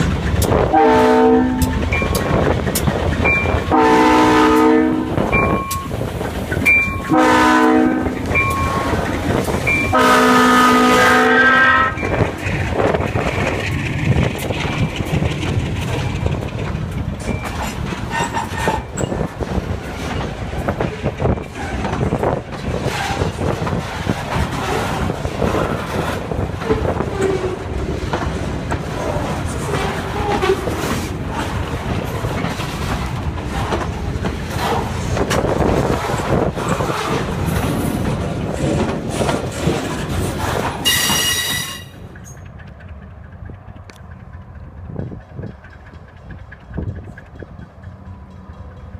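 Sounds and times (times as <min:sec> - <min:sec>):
freight train wheels clanking: 0:00.0 - 0:48.9
high-pitched tone: 0:05.3 - 0:06.0
train wheels squealing: 0:08.2 - 0:09.9, 0:17.2 - 0:19.4, 0:40.8 - 0:42.5.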